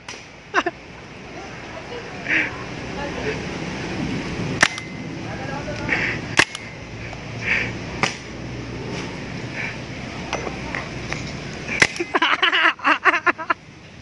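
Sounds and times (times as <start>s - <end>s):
paintball marker firing: 6.4s - 6.7s, 11.8s - 12.1s.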